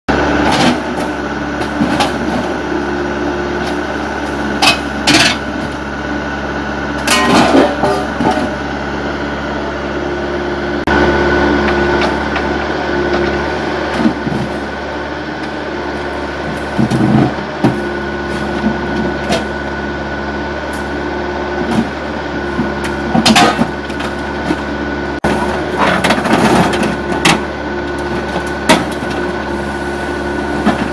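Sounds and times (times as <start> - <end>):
excavator engine and hydraulics droning: 0.1 - 30.9
shear jaws crunching scrap metal: 4.6 - 5.8, 7.0 - 8.6, 21.6 - 29.6.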